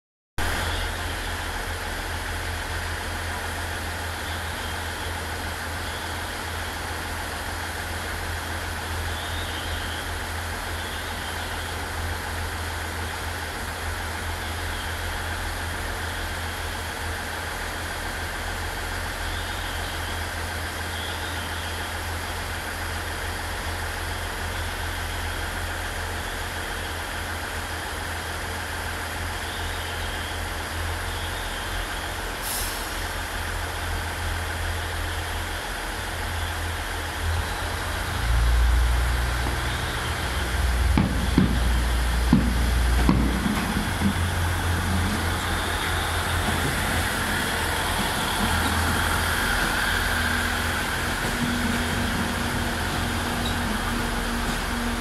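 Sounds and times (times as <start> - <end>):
diesel engines idling: 0.4 - 55.0.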